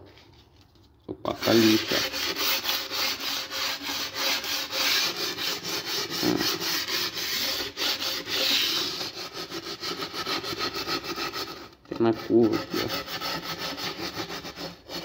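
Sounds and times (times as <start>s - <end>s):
sandpaper rubbing: 1.3s - 15.0s.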